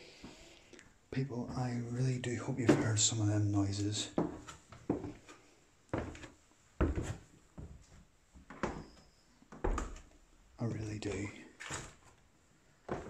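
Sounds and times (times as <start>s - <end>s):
footsteps on wooden floorboards: 2.5s - 3.1s, 4.0s - 12.1s.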